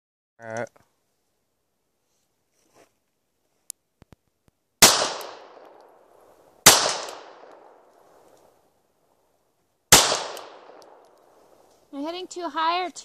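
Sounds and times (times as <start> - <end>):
pistol shots echoing: 4.8 - 6.0, 6.6 - 7.8, 9.9 - 11.2.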